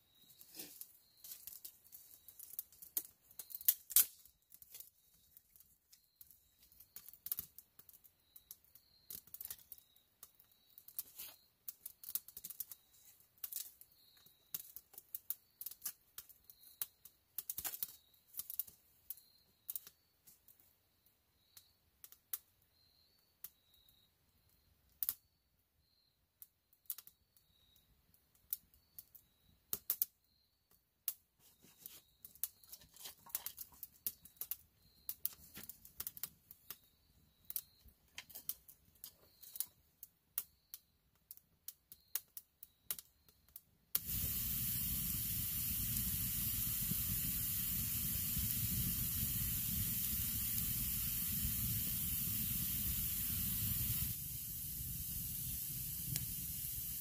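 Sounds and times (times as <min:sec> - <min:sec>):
wood fire crackling and popping: 0:00.4 - 0:13.9, 0:14.5 - 0:18.8, 0:32.2 - 0:39.8, 0:43.9 - 0:57.0
fire hissing: 0:44.0 - 0:57.0.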